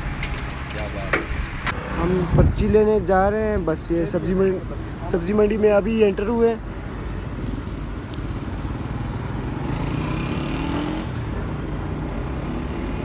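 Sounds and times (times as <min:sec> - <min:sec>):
traffic noise: 0:00.0 - 0:13.0
motorcycle engine accelerating: 0:01.7 - 0:02.6, 0:08.4 - 0:11.1.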